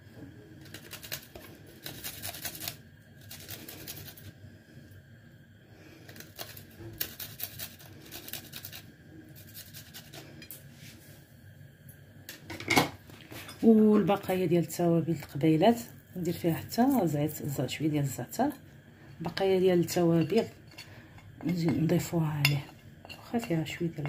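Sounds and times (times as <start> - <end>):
garlic scraping on a grater: 0.6 - 4.3, 6.1 - 10.2.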